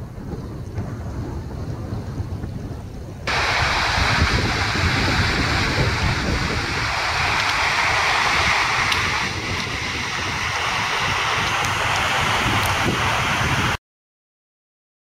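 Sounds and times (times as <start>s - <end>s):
wind rumbling on microphone: 0.0s - 13.8s
mountain stream rushing over stones: 3.3s - 13.8s.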